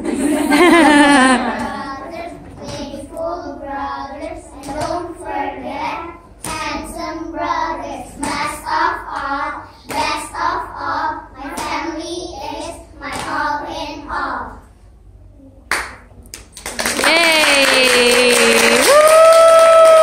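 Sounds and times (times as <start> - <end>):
hand claps: 15.7 - 20.0.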